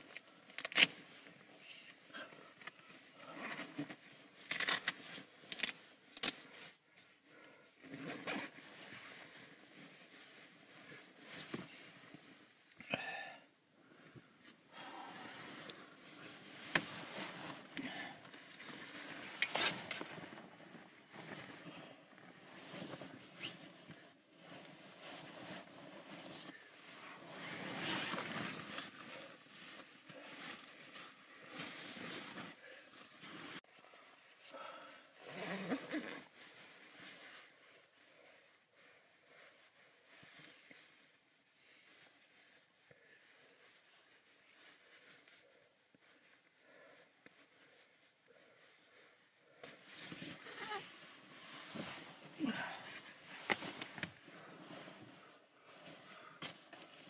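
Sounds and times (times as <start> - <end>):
nylon fabric rustling: 15.2 - 34.5, 35.2 - 57.0.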